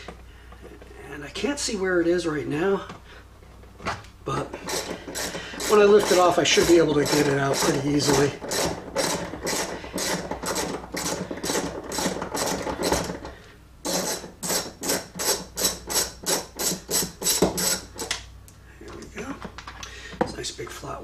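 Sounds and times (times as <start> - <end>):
hand ratchet clicking: 4.6 - 13.2, 13.9 - 18.2.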